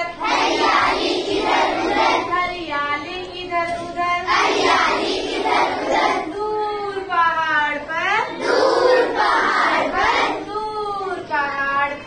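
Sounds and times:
children singing in unison: 0.1s - 2.3s, 4.3s - 6.3s, 8.4s - 10.5s.

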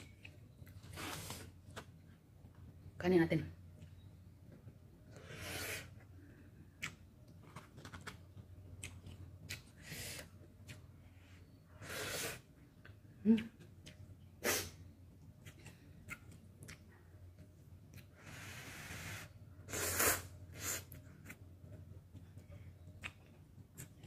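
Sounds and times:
wet chewing and mouth smacks: 6.8s - 9.8s, 15.2s - 18.1s, 21.2s - 24.0s.

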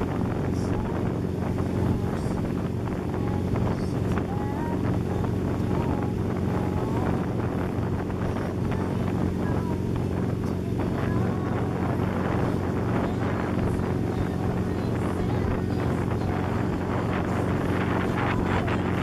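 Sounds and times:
boat engine running: 0.0s - 19.0s
rush of churning wake: 0.0s - 19.0s
wind noise on microphone: 0.0s - 19.0s.

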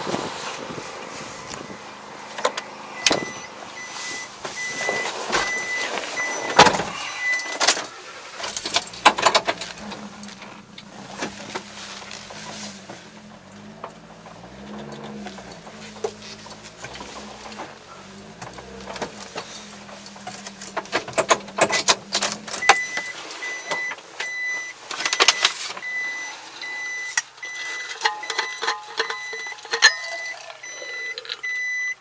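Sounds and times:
car door shutting: 1.2s - 26.1s
warning chime beeping: 1.3s - 7.6s, 18.6s - 32.0s.

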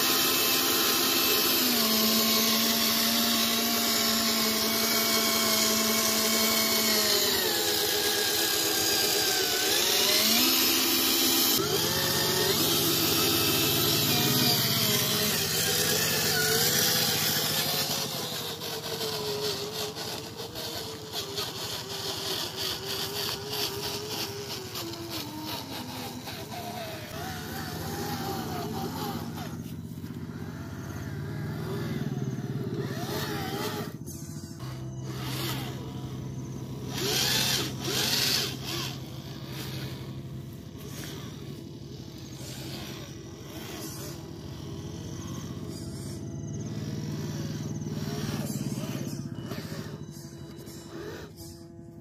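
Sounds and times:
electric motor whining: 0.0s - 52.0s.

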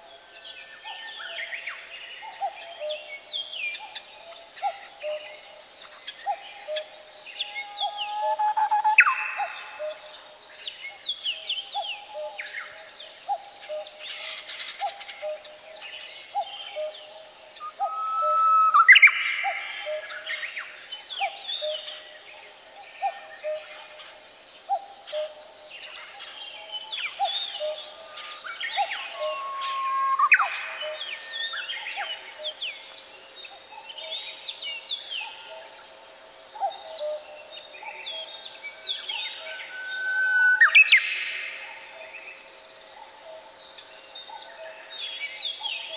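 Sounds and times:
small birds chirping: 0.6s - 45.9s
low repeating bird call: 17.6s - 20.1s, 27.2s - 31.3s, 39.1s - 42.1s.

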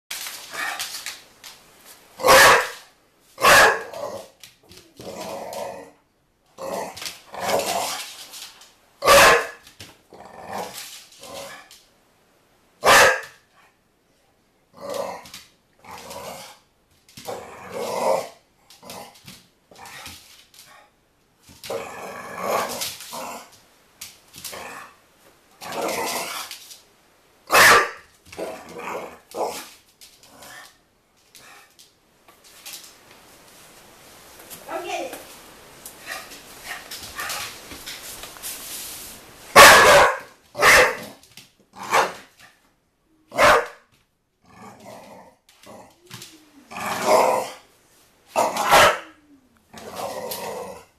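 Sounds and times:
puppy barking: 2.2s - 3.9s, 9.0s - 9.6s, 12.8s - 13.4s, 27.5s - 28.1s, 39.6s - 41.2s, 41.8s - 42.2s, 43.3s - 43.9s, 48.4s - 49.2s
puppy growling: 44.4s - 47.7s, 48.4s - 50.9s.

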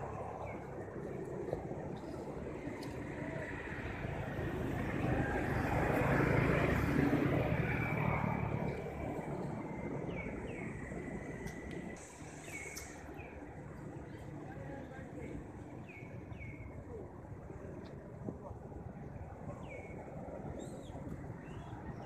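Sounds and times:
vehicle engine passing: 0.0s - 12.7s
bird chirps: 10.1s - 13.4s, 19.5s - 22.0s.

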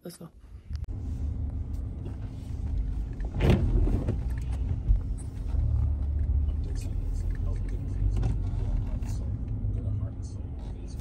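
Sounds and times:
car engine and road rumble: 0.4s - 11.0s.

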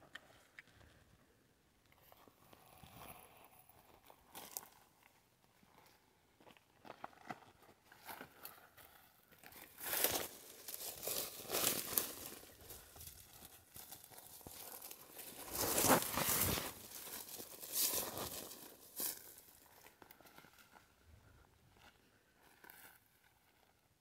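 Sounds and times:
dry vegetation rustling and crunching: 9.4s - 20.8s.

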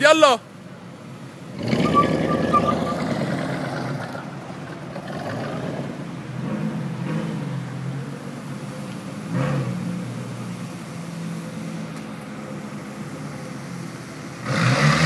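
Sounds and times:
car engine revving: 1.2s - 15.0s.

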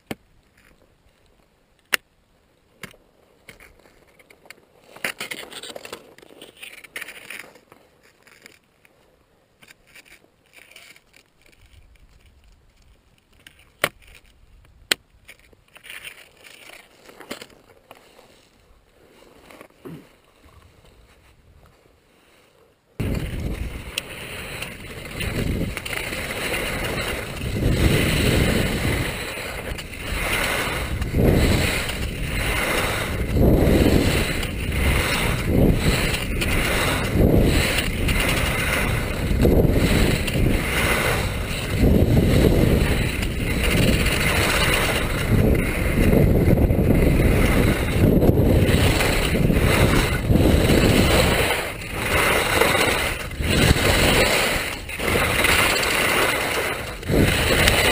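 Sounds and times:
skis scraping on snow: 3.0s - 9.1s, 15.6s - 57.9s
wind buffeting microphone: 23.0s - 57.9s.

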